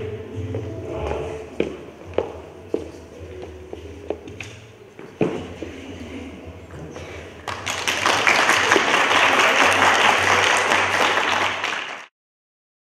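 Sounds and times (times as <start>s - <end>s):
audience applauding: 7.4s - 12.1s.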